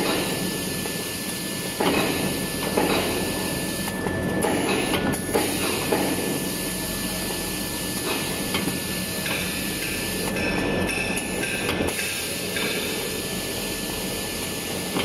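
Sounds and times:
constant high whine: 0:00.0 - 0:15.0
factory machinery din: 0:00.0 - 0:15.0.

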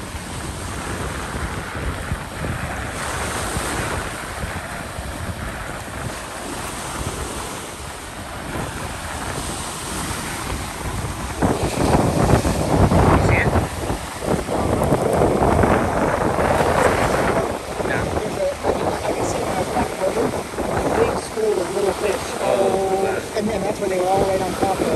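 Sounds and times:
waves washing up gravel beach: 0:00.0 - 0:24.9
wind buffeting microphone: 0:00.0 - 0:24.9.

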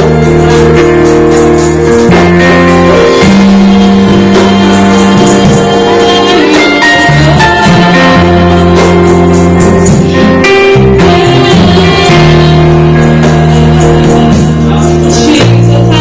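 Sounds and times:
conga drum playing: 0:00.0 - 0:16.0
drum kit playing: 0:00.0 - 0:16.0
live band music: 0:00.0 - 0:16.0
woman singing into a microphone: 0:03.2 - 0:10.2, 0:10.8 - 0:16.0.

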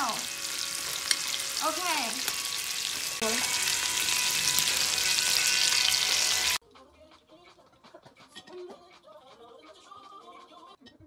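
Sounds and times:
meat sizzling on a grill: 0:00.0 - 0:06.6.

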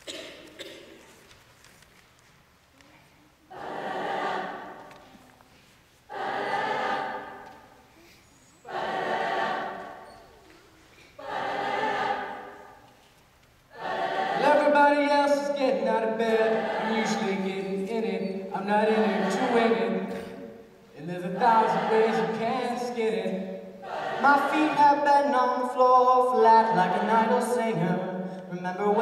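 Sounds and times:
mixed choir singing held chords: 0:03.5 - 0:05.2, 0:06.0 - 0:07.9, 0:08.6 - 0:10.4, 0:11.0 - 0:13.0, 0:13.7 - 0:28.0.

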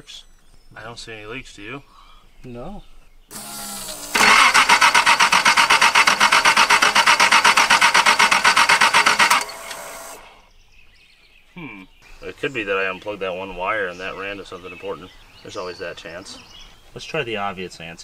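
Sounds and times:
starter cranking engine: 0:03.3 - 0:10.4.

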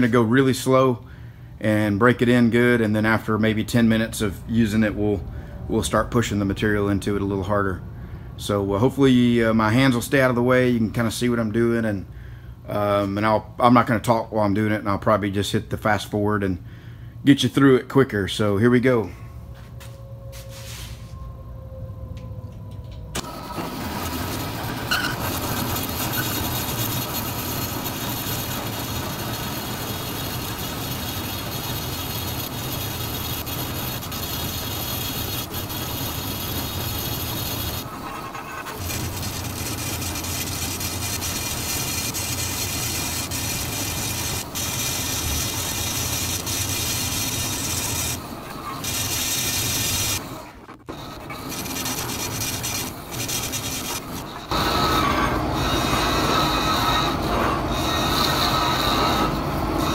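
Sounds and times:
low motor hum: 0:19.2 - 0:48.6
bandsaw cutting steel: 0:23.2 - 0:50.3, 0:50.9 - 0:59.9.

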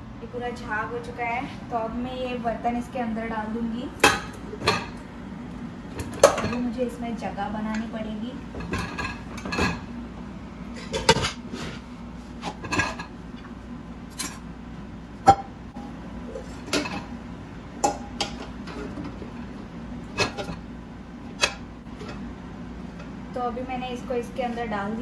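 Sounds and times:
metal pots clanking: 0:08.5 - 0:09.9, 0:10.7 - 0:11.5, 0:12.4 - 0:13.1, 0:16.3 - 0:17.1, 0:20.1 - 0:20.6.

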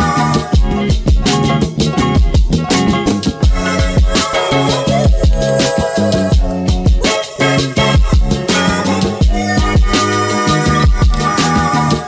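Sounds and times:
sustained music chords: 0:00.0 - 0:12.0
deep kick drum: 0:00.6 - 0:01.4, 0:02.0 - 0:02.8, 0:03.4 - 0:04.2, 0:05.1 - 0:05.6, 0:06.3 - 0:07.1, 0:08.0 - 0:08.4, 0:09.2 - 0:10.0, 0:10.8 - 0:11.3.

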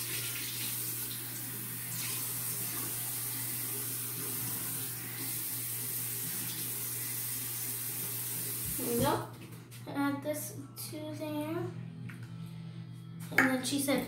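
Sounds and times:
tap water running into container: 0:00.0 - 0:09.0.

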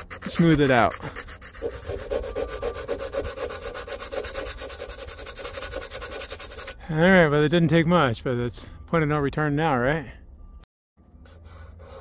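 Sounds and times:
emery cloth sanding metal: 0:00.0 - 0:06.8.

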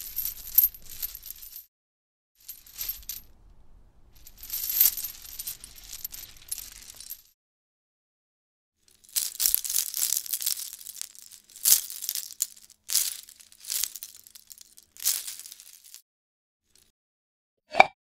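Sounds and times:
metal chains jingling: 0:00.0 - 0:01.6, 0:02.4 - 0:07.3, 0:09.0 - 0:16.0.

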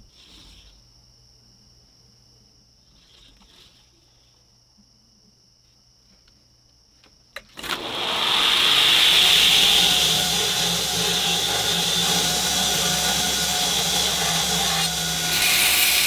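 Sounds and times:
faint shop hum: 0:00.0 - 0:16.0
belt grinder running: 0:07.6 - 0:16.0.

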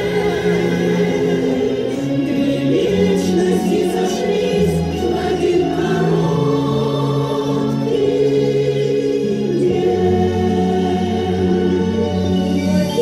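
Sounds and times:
women's choir singing: 0:00.0 - 0:13.0.

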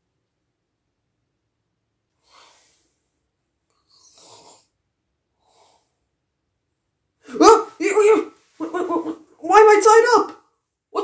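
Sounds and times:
person breathing softly in sleep: 0:02.2 - 0:03.2, 0:05.4 - 0:06.1.

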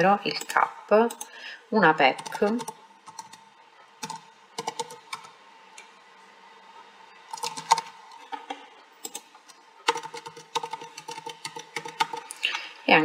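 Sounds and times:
faint steady hum: 0:00.0 - 0:13.0
computer keyboard typing: 0:02.1 - 0:03.4, 0:04.0 - 0:05.4, 0:07.3 - 0:08.0, 0:09.0 - 0:12.6.

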